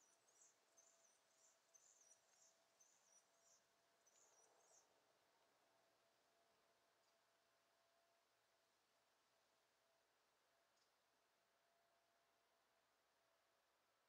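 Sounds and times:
faint high-pitched chirping: 0.0s - 5.2s.

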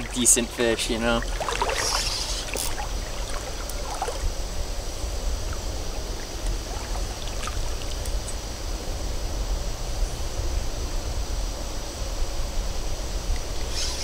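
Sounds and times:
river water running and lapping: 0.0s - 8.3s
steady low rumble: 0.0s - 13.7s.

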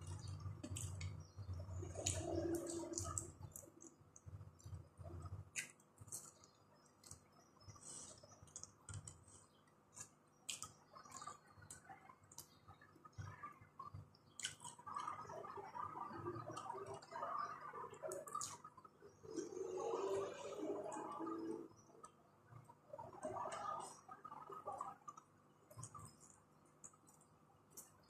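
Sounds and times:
person chewing food: 0.0s - 12.5s, 14.4s - 15.2s
lip smacks and mouth clicks: 1.8s - 4.8s, 5.6s - 7.2s, 10.0s - 12.6s, 14.4s - 15.2s.

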